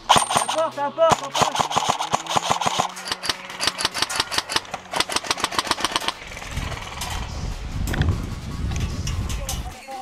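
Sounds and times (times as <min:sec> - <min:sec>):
airsoft rifle full-auto burst: 0:00.0 - 0:07.0
low rumble: 0:06.1 - 0:09.7.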